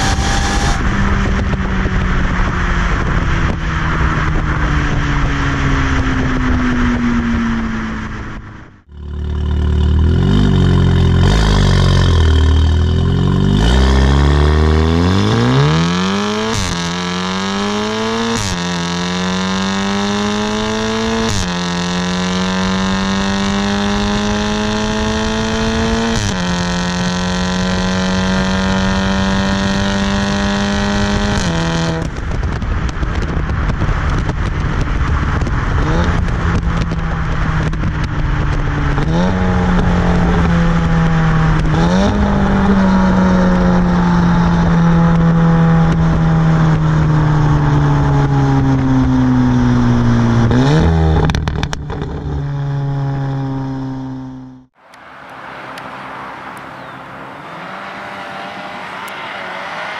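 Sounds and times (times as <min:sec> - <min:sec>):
car engine revving and upshifting: 0:00.0 - 0:01.5, 0:09.6 - 0:32.2, 0:35.1 - 0:51.8, 0:54.8 - 0:59.9.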